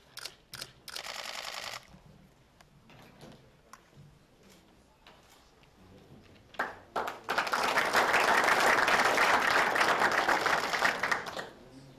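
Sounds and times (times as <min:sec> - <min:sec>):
small group applauding: 0:06.5 - 0:11.7.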